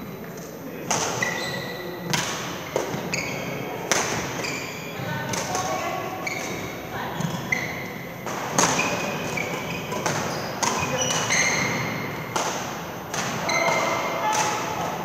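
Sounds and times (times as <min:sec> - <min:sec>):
shoes squeaking on floor: 0:01.0 - 0:12.3, 0:13.3 - 0:14.6
badminton racket hitting shuttlecock: 0:08.3 - 0:15.0.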